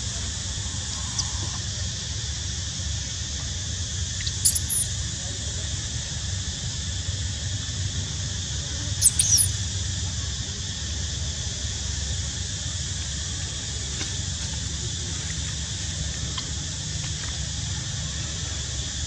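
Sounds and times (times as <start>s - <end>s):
baby monkey squeaking: 4.2s - 4.9s, 9.0s - 9.6s
high hiss: 8.4s - 10.0s.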